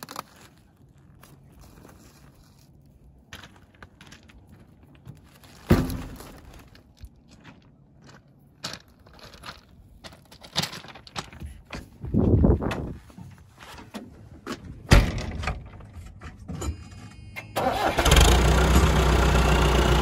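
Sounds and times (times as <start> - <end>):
footsteps on crushed stone: 0.0 - 13.9.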